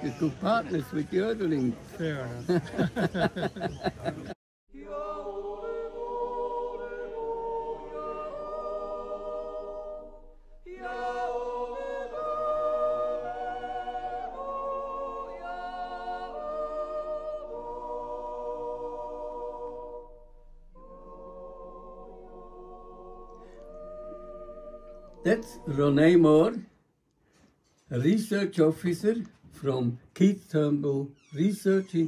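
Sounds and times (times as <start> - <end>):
voices singing held chords: 4.7 - 26.6.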